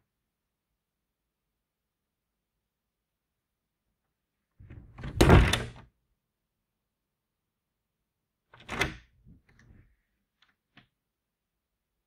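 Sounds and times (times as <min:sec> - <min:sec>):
cabinet door impact: 0:04.9 - 0:05.8.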